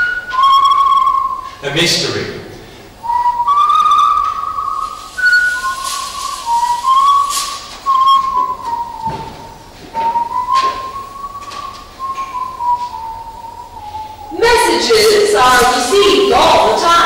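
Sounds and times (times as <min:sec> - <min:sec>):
person whistling slow tune: 0:00.0 - 0:01.6, 0:03.0 - 0:14.4
breaths: 0:02.6 - 0:03.0.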